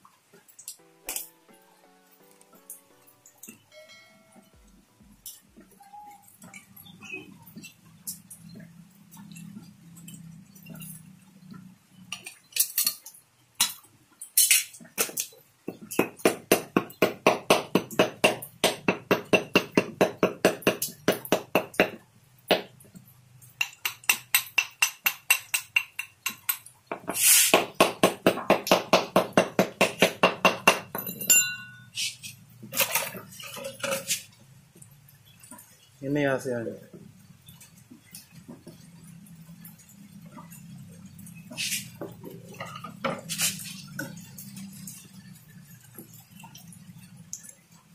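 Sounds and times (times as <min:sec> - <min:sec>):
hammer clinking on metal: 0:30.4 - 0:31.9.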